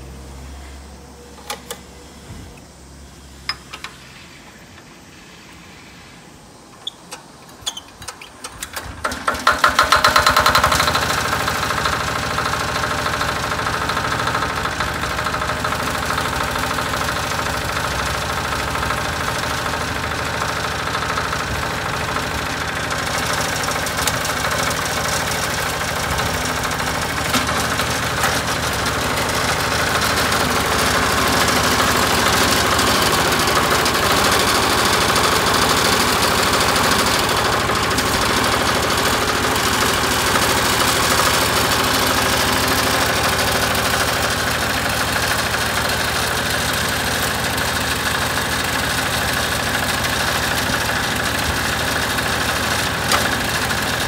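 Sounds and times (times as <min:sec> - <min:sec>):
diesel engine starting and running: 0:00.0 - 0:54.0
sharp starter clicks: 0:06.8 - 0:17.2, 0:21.2 - 0:49.0, 0:49.6 - 0:54.0.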